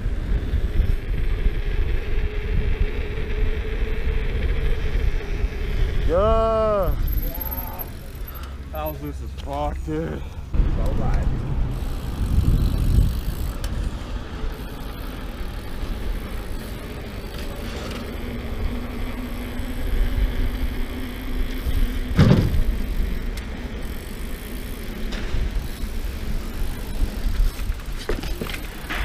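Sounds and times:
bike tyres rumbling on paving: 0.0 - 29.0
wind on microphone: 10.5 - 14.2.

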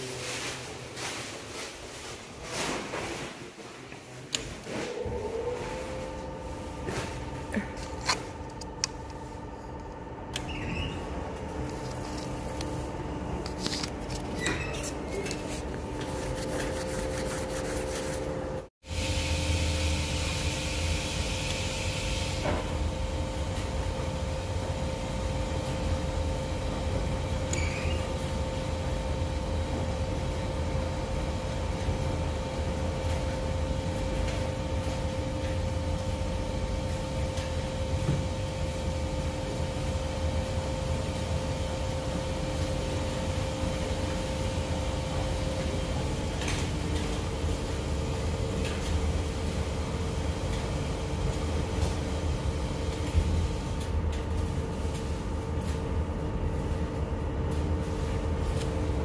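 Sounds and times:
dryer motor hum: 3.8 - 59.0.

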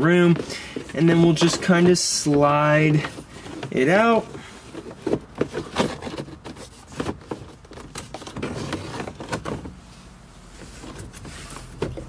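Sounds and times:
plastic clicks and scraping: 0.2 - 9.7.

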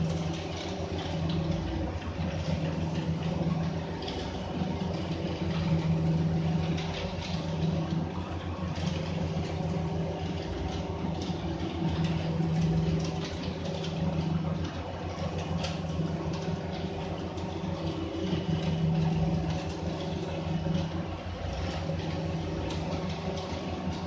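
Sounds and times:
engine idling: 0.0 - 24.0.

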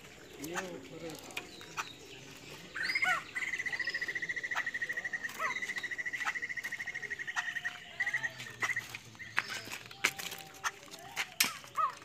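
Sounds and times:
bird trilling: 0.2 - 12.0
short bird calls: 1.6 - 9.8.

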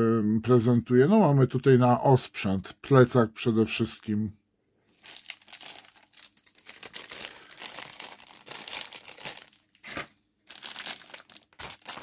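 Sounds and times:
plastic bag crinkling: 4.9 - 12.0.

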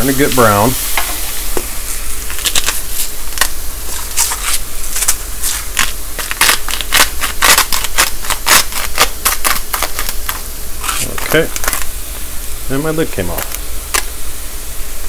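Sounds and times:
mushrooms sizzling in butter: 0.0 - 15.0
spice grinder crunching: 1.8 - 12.0, 13.2 - 14.2.

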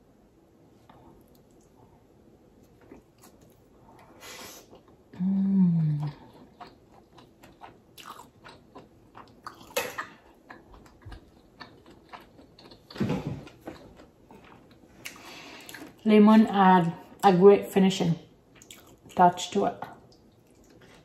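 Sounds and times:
person humming mmm: 5.1 - 6.3
chewing and lip smacks: 6.3 - 13.0, 18.5 - 19.2, 20.1 - 21.0.

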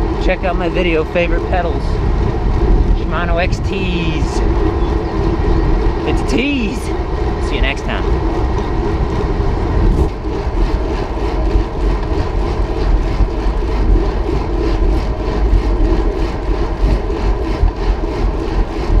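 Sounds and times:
wind rumbling on microphone: 0.0 - 19.0
tyres rolling on pavement: 7.0 - 16.7.

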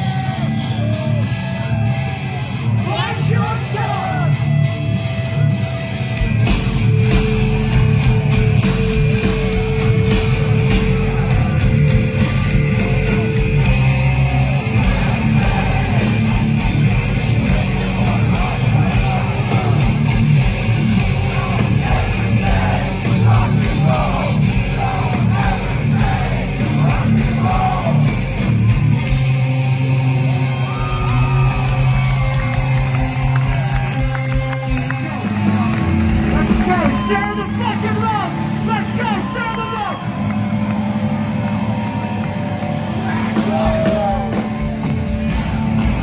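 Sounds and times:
live heavy rock band: 0.0 - 46.0
yelled vocals: 10.4 - 33.8.

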